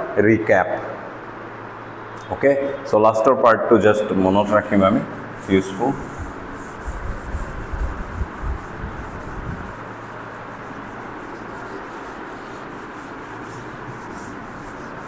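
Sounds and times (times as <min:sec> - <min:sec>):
eraser wiping blackboard: 0:04.2 - 0:15.0.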